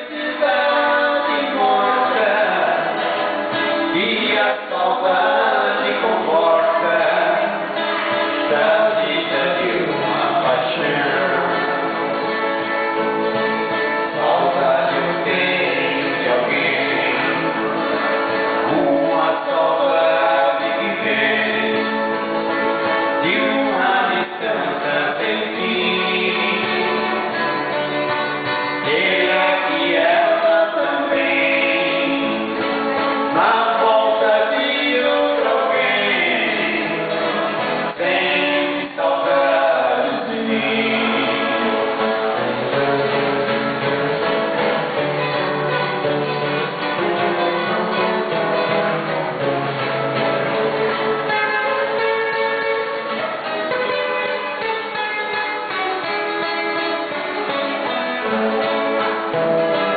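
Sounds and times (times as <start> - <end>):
men singing in harmony: 0.0 - 12.2, 13.6 - 27.6, 28.7 - 42.6
strummed acoustic guitars: 0.0 - 59.9.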